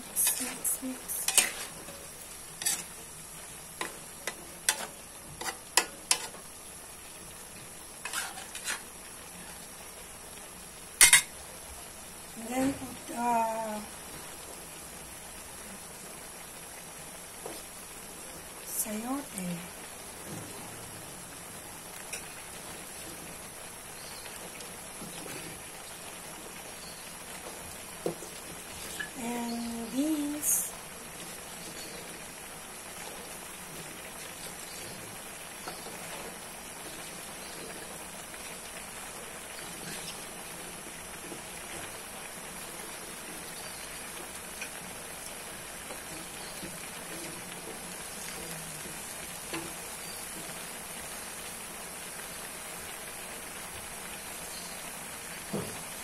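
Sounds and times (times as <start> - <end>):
food sizzling and bubbling in wok: 0.0 - 56.0
metal spatula scraping a wok: 0.2 - 1.9, 2.6 - 3.0, 4.6 - 6.4, 8.0 - 8.9, 39.8 - 40.3.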